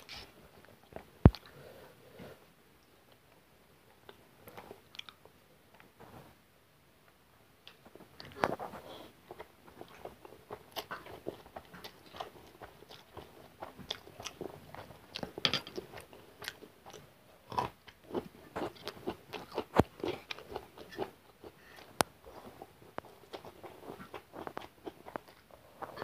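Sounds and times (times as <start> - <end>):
chewing noodles: 7.7 - 26.0.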